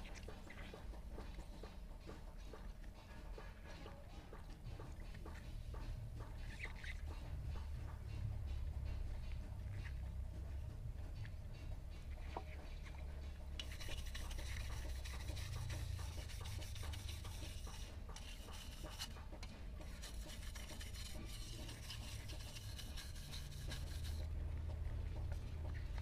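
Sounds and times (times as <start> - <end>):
wire brush scrubbing metal: 5.2 - 24.5.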